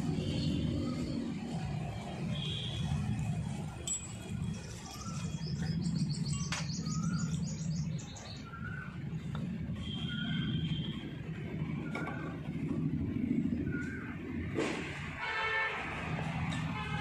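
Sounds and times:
small birds chirping: 4.5 - 9.0.

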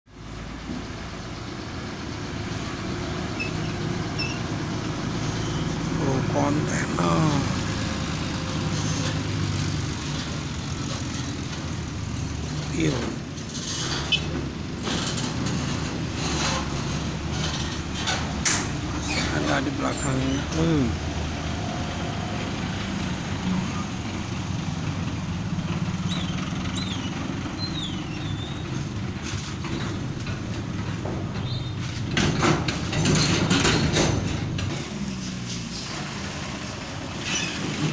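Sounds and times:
heavy truck engines droning: 0.1 - 37.9
short high squeaks: 3.3 - 4.6, 5.2 - 5.9, 13.5 - 14.4, 26.0 - 28.6, 37.2 - 37.9.

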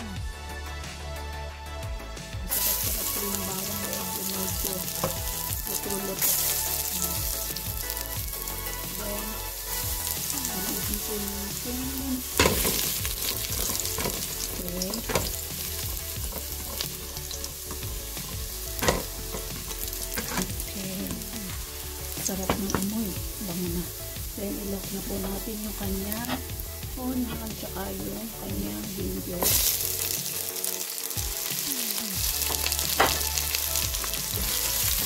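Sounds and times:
garlic sizzling in hot oil: 2.5 - 35.0.

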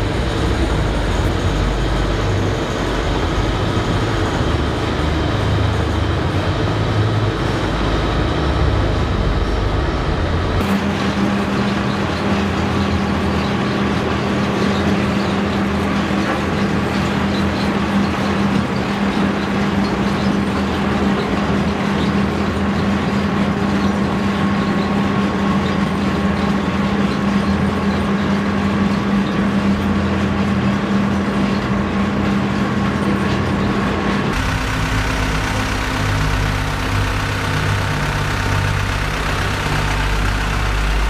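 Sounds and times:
heavy mining machinery drone: 0.0 - 41.0.

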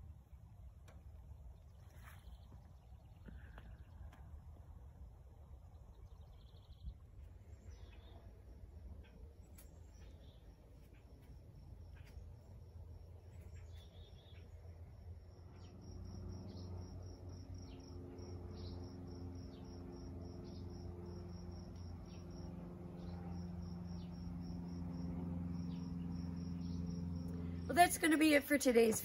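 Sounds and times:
low steady hum: 0.0 - 29.0
cricket chirping: 10.0 - 27.7.

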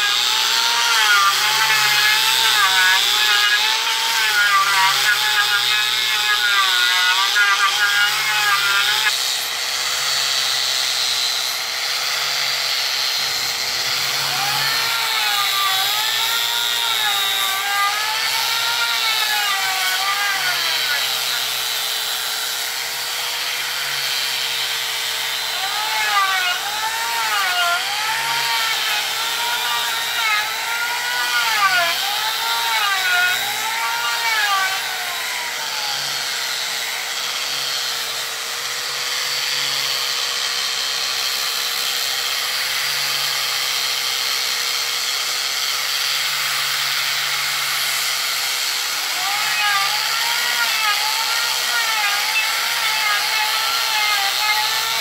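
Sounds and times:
angle grinder sanding wood: 0.0 - 55.0.

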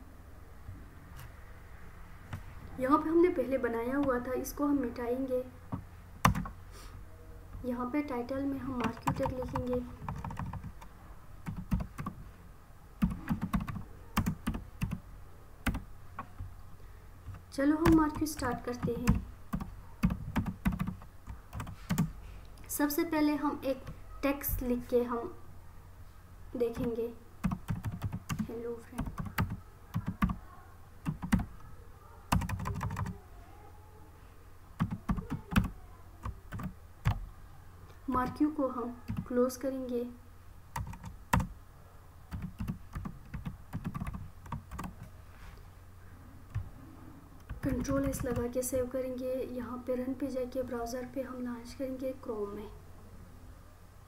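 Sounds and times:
typing on computer keyboard: 5.7 - 6.6, 8.8 - 12.2, 13.0 - 15.0, 15.6 - 16.5, 17.3 - 22.1, 26.7 - 30.4, 31.0 - 31.5, 32.3 - 33.2, 34.8 - 37.2, 39.1 - 39.3, 40.8 - 41.5, 42.3 - 45.1, 47.4 - 48.5.

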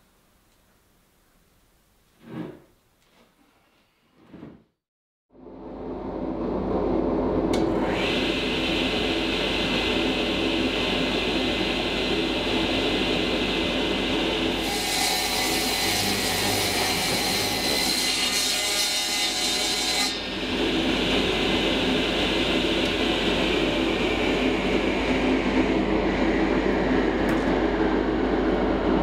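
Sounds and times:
table saw drone: 7.5 - 27.2.

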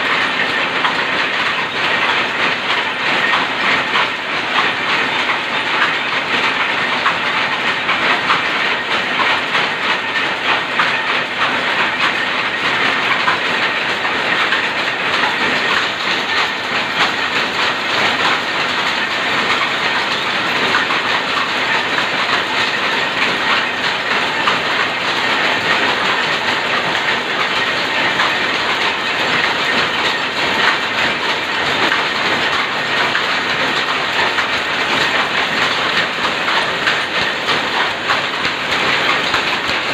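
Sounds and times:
loom clattering: 0.0 - 39.9.

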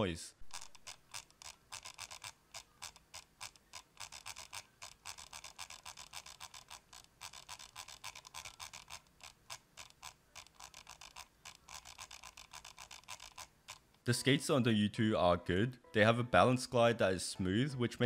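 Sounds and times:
mouse scroll wheel clicks: 0.4 - 14.0.

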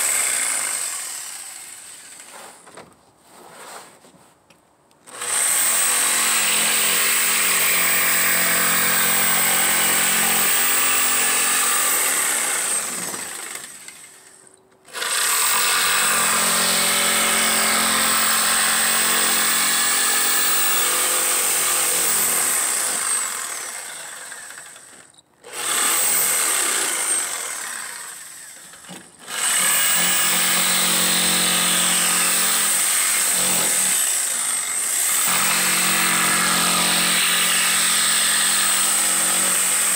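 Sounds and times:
jigsaw cutting plywood: 0.0 - 2.3, 5.1 - 39.9.

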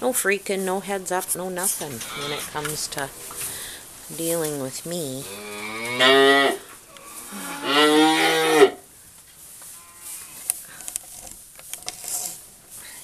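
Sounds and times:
faint rustling: 0.0 - 7.6
cattle mooing: 1.6 - 3.9, 5.1 - 8.8.

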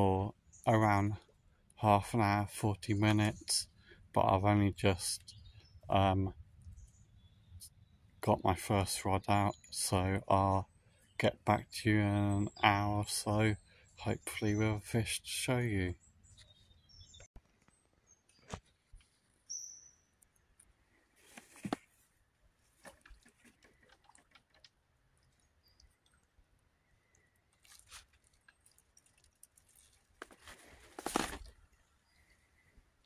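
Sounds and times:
soft rustles and knocks: 21.2 - 22.0.

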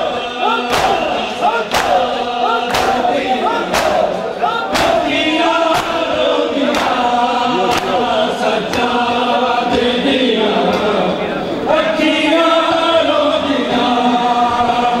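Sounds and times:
men chanting a lament: 0.0 - 15.0
chest beating slaps: 0.6 - 8.1, 8.7 - 9.0.

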